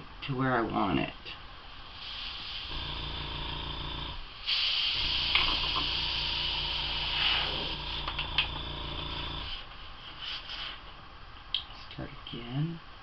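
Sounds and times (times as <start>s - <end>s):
airbrush hissing compressed air: 1.9s - 9.6s
pulsing compressor hum: 2.7s - 9.6s.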